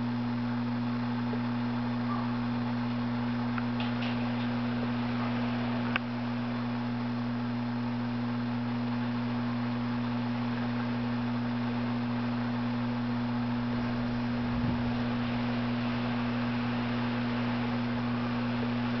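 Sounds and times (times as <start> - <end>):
low electrical hum: 0.0 - 19.0
constant hiss: 2.4 - 19.0
small click: 5.9 - 6.1.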